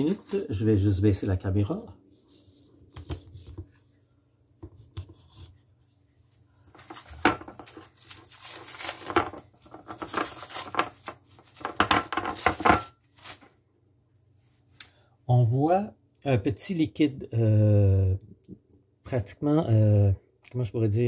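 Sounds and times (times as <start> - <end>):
cling film crinkling and rustling: 0.0 - 0.6, 6.6 - 13.6.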